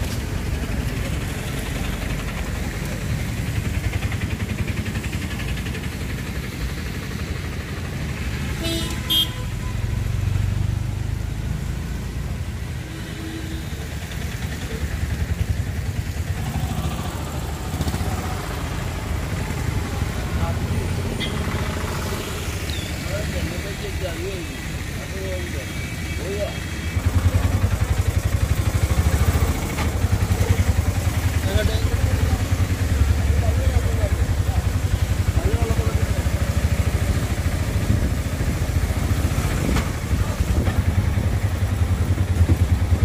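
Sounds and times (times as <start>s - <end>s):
road traffic rumble: 0.0s - 43.0s
vehicle horn toot: 8.6s - 9.9s, 21.2s - 21.4s.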